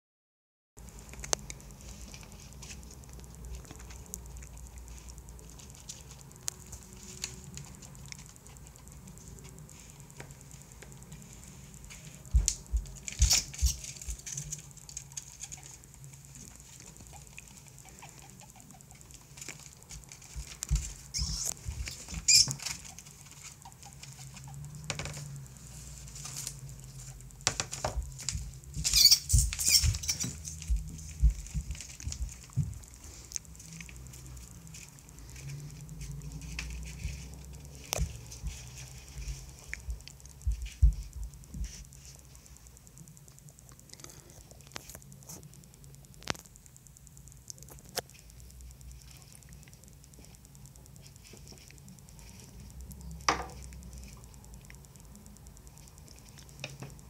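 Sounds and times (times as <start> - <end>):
rat scratching on newspaper: 1.7 - 43.3.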